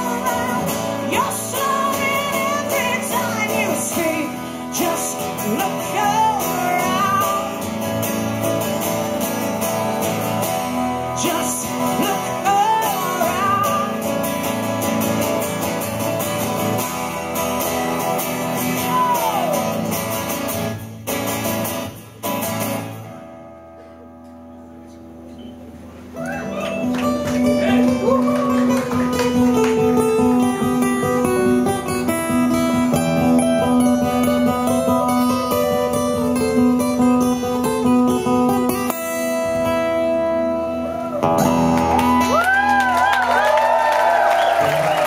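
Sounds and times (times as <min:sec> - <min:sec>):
woman singing: 0:00.0 - 0:07.6, 0:11.1 - 0:14.1
acoustic guitars strummed: 0:00.0 - 0:42.9.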